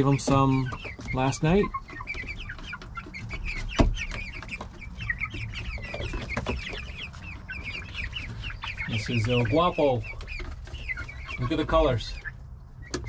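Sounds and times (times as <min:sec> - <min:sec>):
young chickens peeping and clucking: 0:00.0 - 0:13.0.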